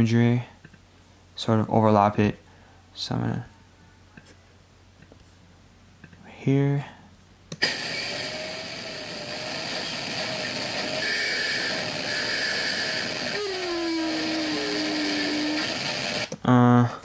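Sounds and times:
loud hiss with wavering tones: 7.6 - 16.4.

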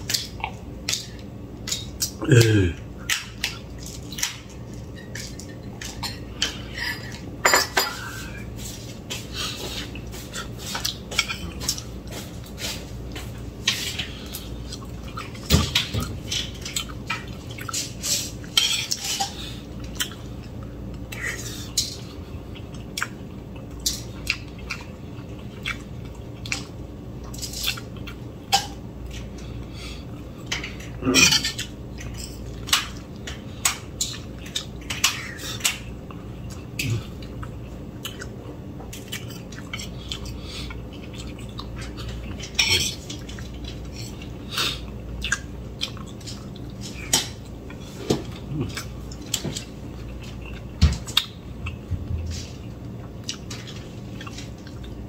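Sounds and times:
cutlery clinking on ceramic plate: 7.4 - 8.1.

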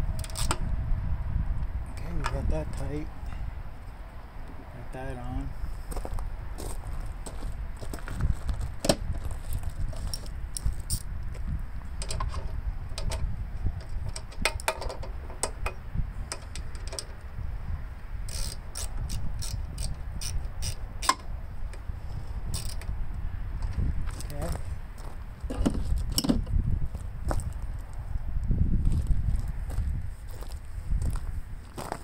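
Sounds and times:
low rumble: 0.0 - 4.9
ratchet clicking: 18.3 - 21.3, 22.5 - 22.9.

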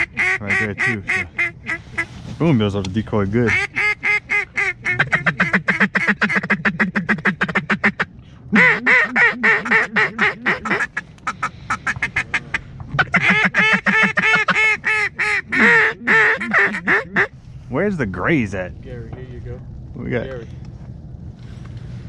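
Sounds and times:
duck quacking: 0.0 - 2.1, 3.5 - 17.3.

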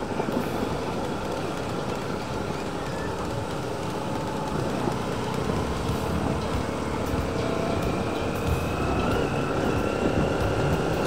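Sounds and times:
road noise: 0.0 - 11.0
motorcycle engine running: 4.0 - 9.8.

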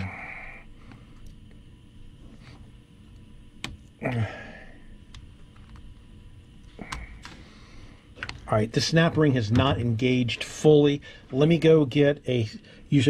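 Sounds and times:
person grunting: 4.0 - 4.6.

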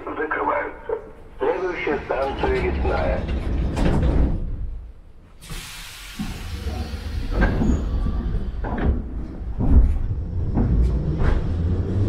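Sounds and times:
subway train rumbling: 0.0 - 12.0
air hissing: 5.4 - 8.1.

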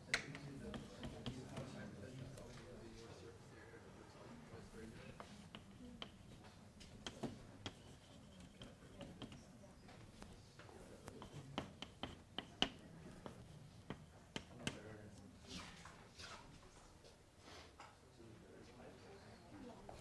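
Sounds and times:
chalk tapping and scratching: 0.1 - 2.6, 4.8 - 16.4.

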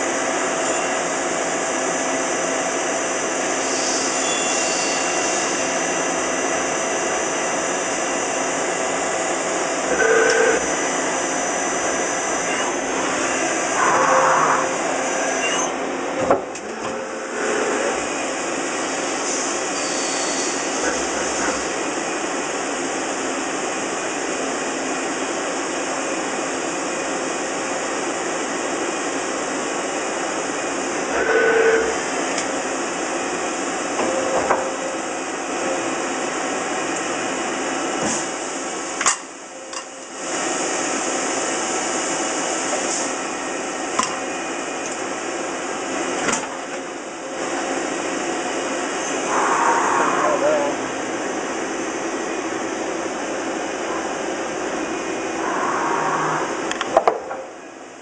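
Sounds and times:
lathe machine hiss: 3.3 - 8.2, 17.0 - 22.1.

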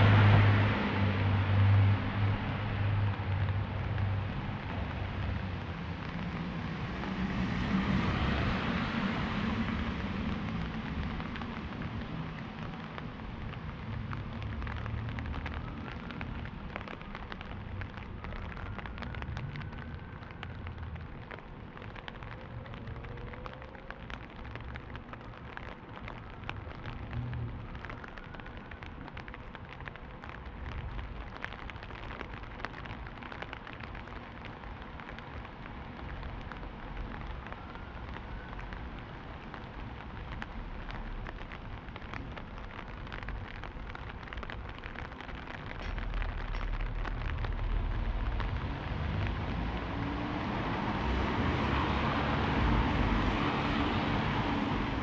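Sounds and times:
sharp raindrop hits: 0.0 - 55.0
steady rain falling: 0.0 - 55.0.

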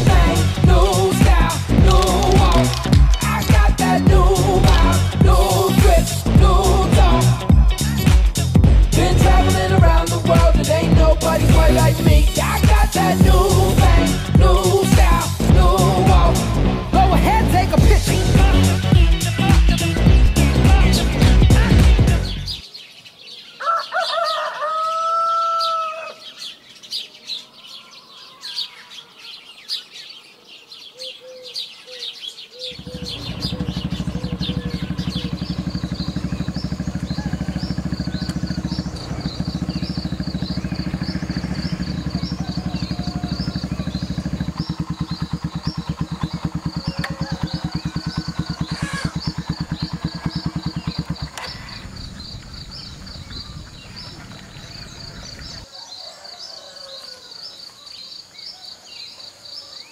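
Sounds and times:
low pulsing drone: 0.0 - 22.6, 32.8 - 55.6
small birds chirping: 0.0 - 59.9
rooster crowing: 23.6 - 26.4, 35.9 - 45.4, 46.2 - 52.0, 53.2 - 58.2.

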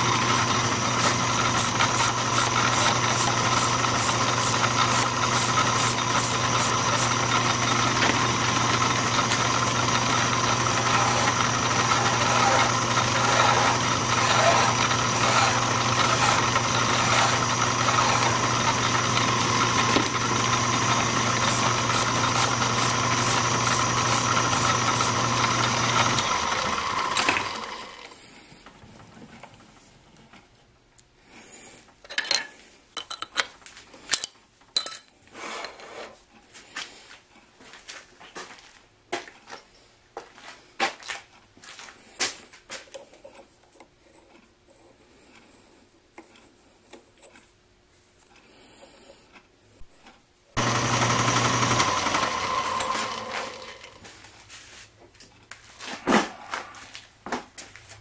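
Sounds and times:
file on spinning steel rod: 0.0 - 27.9, 50.6 - 54.0
metal lathe running: 0.0 - 28.0, 50.6 - 54.0.

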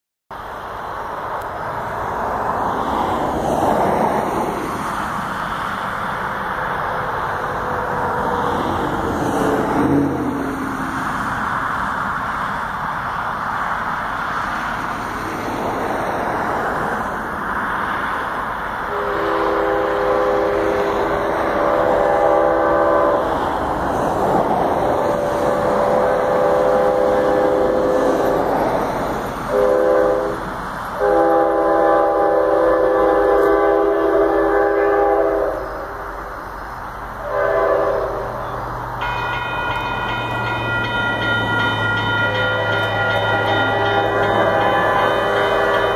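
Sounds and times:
train rumble: 0.3 - 45.9
locomotive air horn: 18.9 - 23.5, 24.9 - 28.5, 29.5 - 30.4, 31.0 - 36.0, 37.2 - 39.2, 42.3 - 45.9.

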